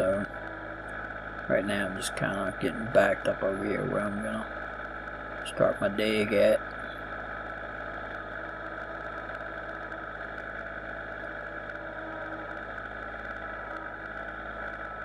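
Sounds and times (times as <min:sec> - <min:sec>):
tractor diesel engine running: 0:00.0 - 0:12.2.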